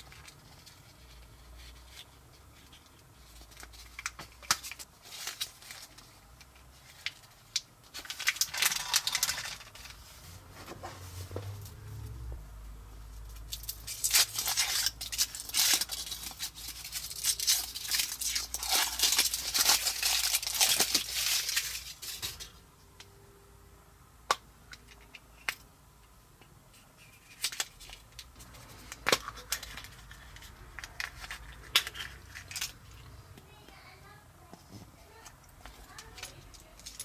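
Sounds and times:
foil wrapper crinkling and tearing: 0:07.0 - 0:10.0, 0:13.5 - 0:22.5.

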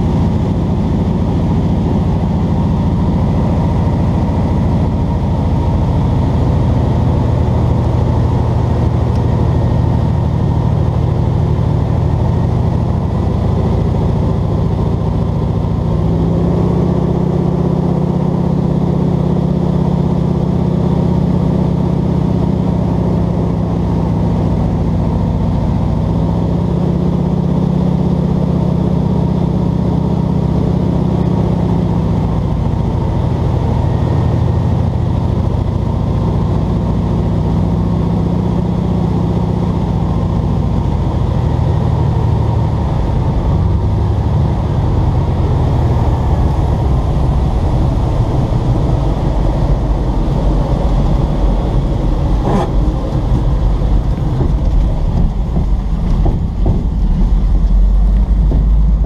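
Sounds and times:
plane engine and propeller drone: 0:00.0 - 0:59.0.

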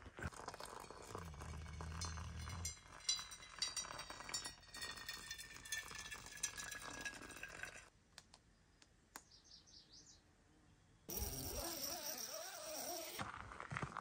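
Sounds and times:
water pouring from kettle: 0:00.2 - 0:07.9.

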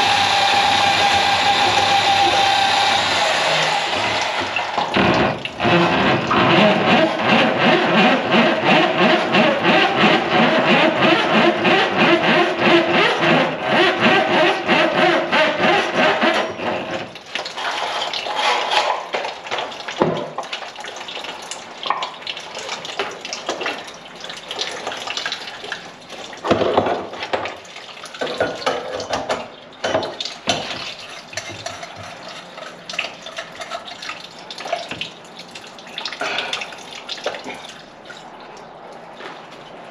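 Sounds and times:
pipe and bucket clatter: 0:00.0 - 0:39.9
water rushing into bucket: 0:00.0 - 0:39.9
water dripping: 0:03.5 - 0:06.4, 0:17.1 - 0:39.9.

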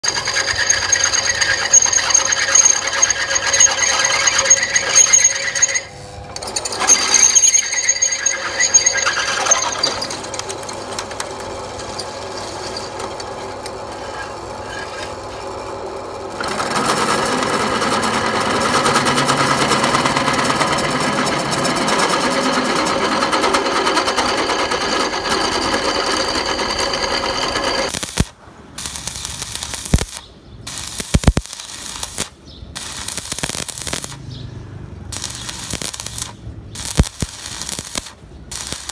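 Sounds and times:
drill press boring through steel: 0:00.0 - 0:28.2.

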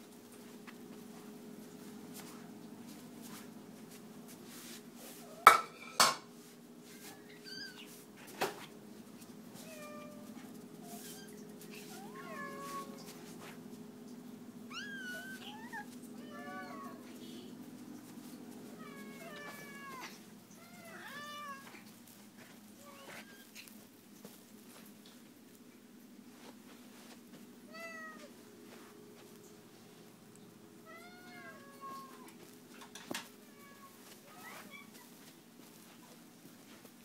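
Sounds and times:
cats meowing: 0:06.9 - 0:08.0, 0:09.6 - 0:13.3, 0:14.6 - 0:17.6, 0:18.6 - 0:21.9, 0:22.8 - 0:23.8, 0:27.7 - 0:28.4, 0:30.8 - 0:32.4, 0:33.2 - 0:35.3
steady low hum: 0:12.8 - 0:20.9.

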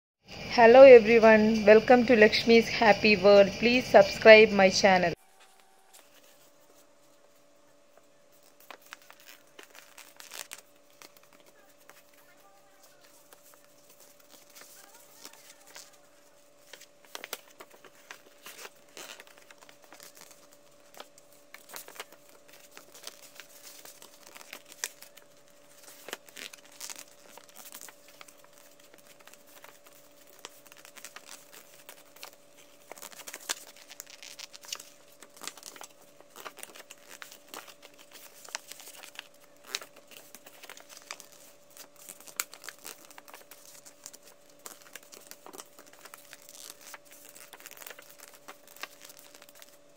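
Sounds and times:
paper rustling and crinkling: 0:05.2 - 0:49.9.

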